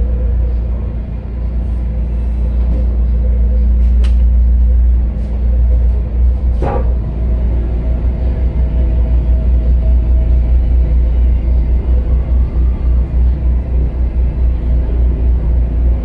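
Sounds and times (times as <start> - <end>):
diesel engine rumbling: 0.0 - 16.0.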